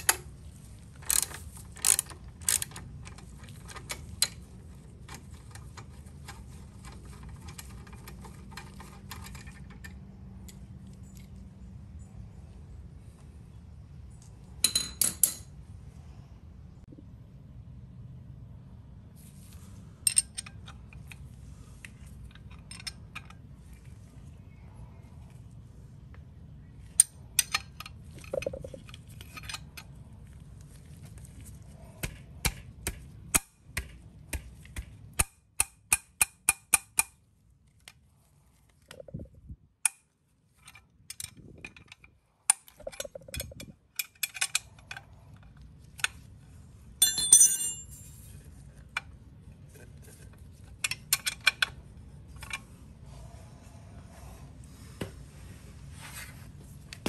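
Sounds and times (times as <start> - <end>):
wrench clicking on bolt: 1.0 - 4.4.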